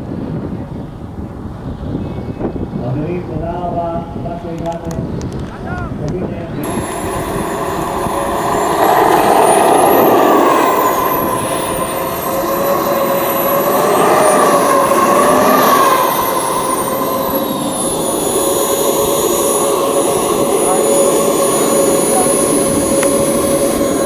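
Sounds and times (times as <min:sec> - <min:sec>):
rushing exhaust noise: 0:02.6 - 0:24.0
model jet turbine whine: 0:06.3 - 0:24.0.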